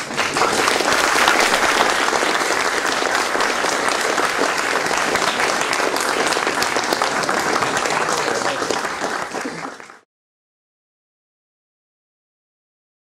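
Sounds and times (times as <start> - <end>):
large audience applauding: 0.0 - 10.1.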